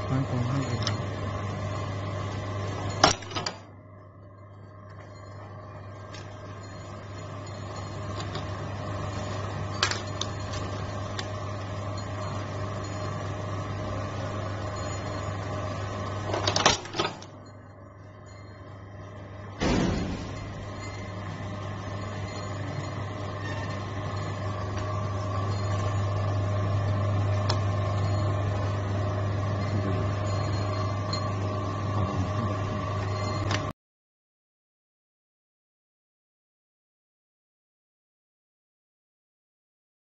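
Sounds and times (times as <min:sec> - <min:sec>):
machine humming: 0:00.0 - 0:33.7
press strikes: 0:19.6 - 0:22.0.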